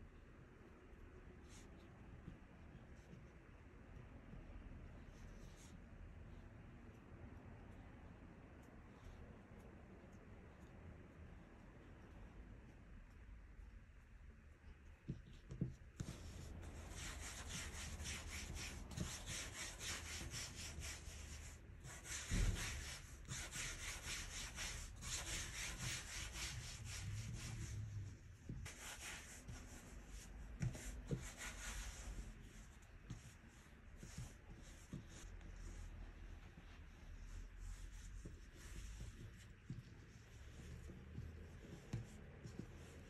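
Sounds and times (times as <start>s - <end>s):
hands rolling dough: 1.3s - 43.0s.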